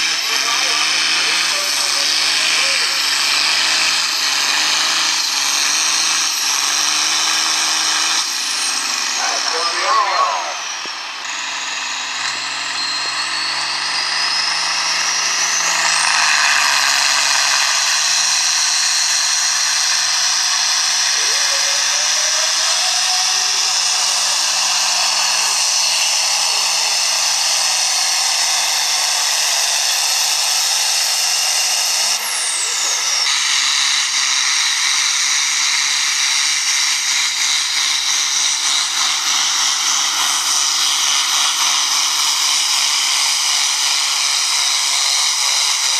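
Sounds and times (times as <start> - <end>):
high whine: 0.0 - 27.5
tractor engine labouring: 0.0 - 45.9
tractor engine pulsing: 0.0 - 45.9.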